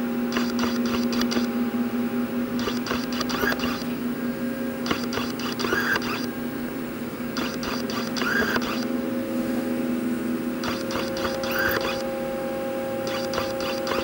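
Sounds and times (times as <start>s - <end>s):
lathe humming: 0.0s - 14.0s
hissing clicking sound: 7.4s - 8.9s.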